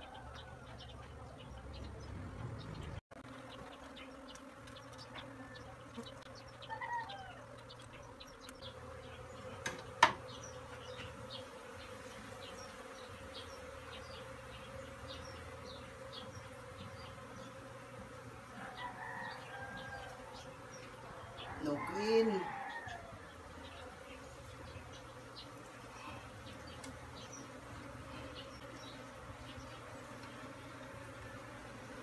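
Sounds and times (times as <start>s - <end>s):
honeybees buzzing: 0.0s - 32.0s
small ticks: 3.5s - 5.3s, 5.9s - 8.7s.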